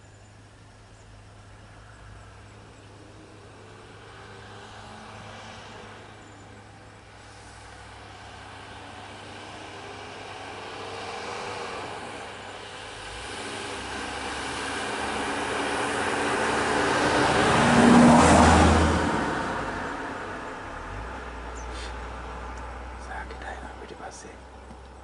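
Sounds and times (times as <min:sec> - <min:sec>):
car driving past: 0:01.8 - 0:25.0.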